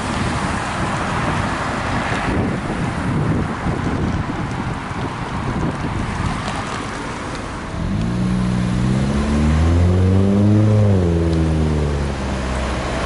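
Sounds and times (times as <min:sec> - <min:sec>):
wind rumble on microphone: 0:00.0 - 0:13.0
vehicle engine pulling away: 0:07.6 - 0:13.0.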